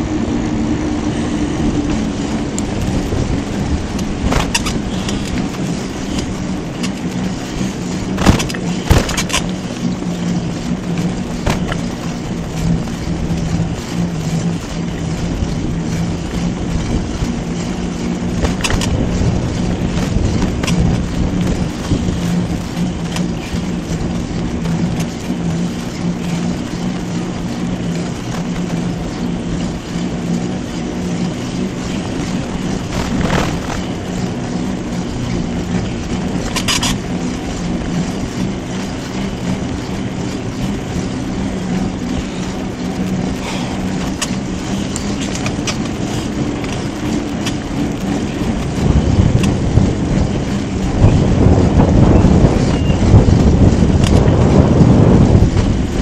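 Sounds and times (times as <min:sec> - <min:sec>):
bike rolling rush: 0:00.0 - 0:56.0
bike clicks and rattles: 0:03.9 - 0:10.0, 0:18.4 - 0:19.2, 0:20.0 - 0:22.0, 0:32.8 - 0:33.9, 0:35.8 - 0:37.1, 0:43.4 - 0:49.9, 0:52.6 - 0:54.6.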